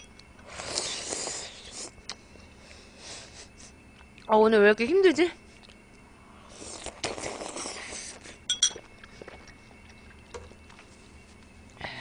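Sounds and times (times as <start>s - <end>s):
noodles slurped: 0.6s - 2.0s, 6.5s - 8.3s
faint chewing: 6.6s - 11.8s
chopsticks clinking on bowl: 8.5s - 8.8s.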